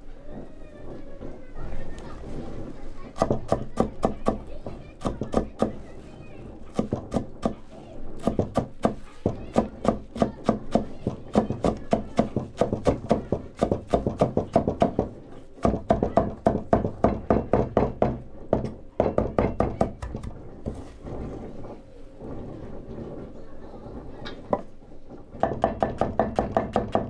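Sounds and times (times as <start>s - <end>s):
rapid sharp knocking: 2.2s - 21.2s, 25.3s - 27.0s.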